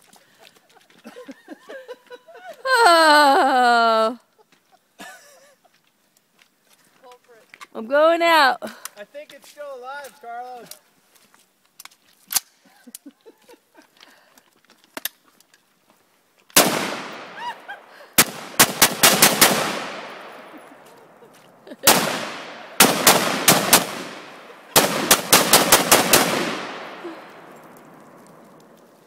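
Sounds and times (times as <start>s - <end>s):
rifle shots with echo: 16.6s - 17.6s, 18.2s - 21.1s, 21.8s - 28.6s.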